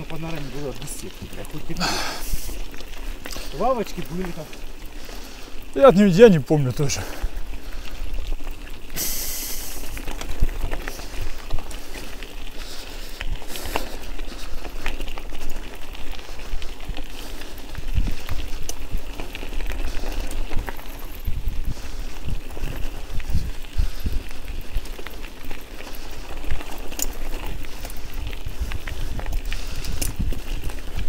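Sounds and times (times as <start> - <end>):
bicycle rolling over rough ground: 0.0 - 31.0
loud hiss: 9.0 - 9.8.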